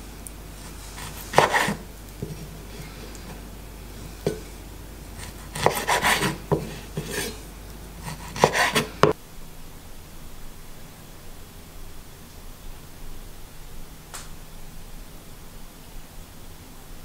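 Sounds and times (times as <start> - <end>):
knife slicing on wooden board: 0.6 - 4.5, 5.1 - 7.4, 8.0 - 9.2.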